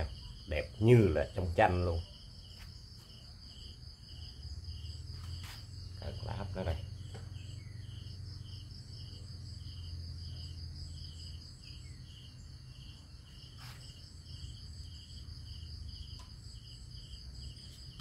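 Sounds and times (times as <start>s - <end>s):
insects chirping: 0.0s - 18.0s.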